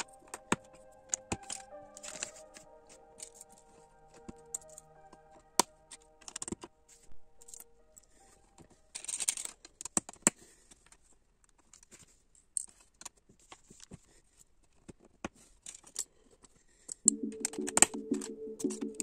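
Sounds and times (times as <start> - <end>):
background music: 0.0 - 8.9, 17.1 - 19.0.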